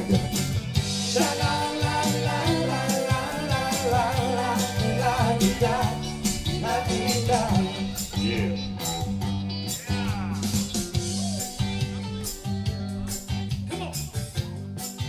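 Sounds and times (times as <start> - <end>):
person singing: 0.0 - 0.4, 1.0 - 9.1, 9.7 - 11.7
drum beat: 0.0 - 14.5
bass line: 0.0 - 15.0.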